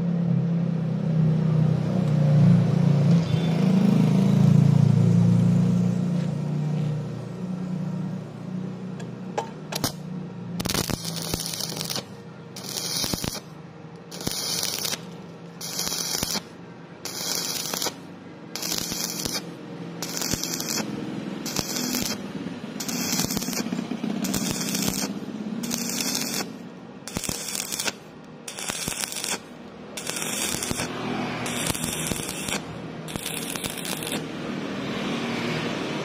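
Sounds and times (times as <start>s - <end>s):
welding arc crackling and hissing: 9.8s - 10.0s, 10.6s - 13.5s, 14.1s - 34.3s.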